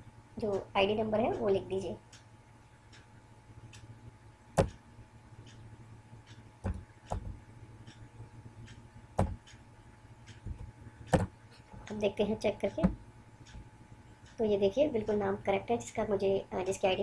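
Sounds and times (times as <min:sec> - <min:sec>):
faint steady hum: 0:00.0 - 0:17.0
keyboard keys clicking: 0:10.3 - 0:11.3.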